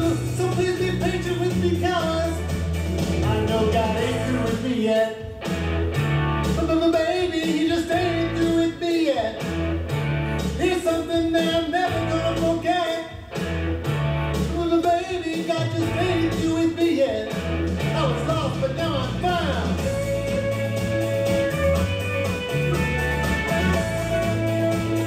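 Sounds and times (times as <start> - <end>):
person singing: 0.0 - 2.5, 3.2 - 5.4, 6.6 - 9.5, 10.6 - 13.3, 14.5 - 21.8
bass line: 0.0 - 11.0, 11.7 - 14.9, 15.5 - 25.0
steady beat: 0.0 - 25.0.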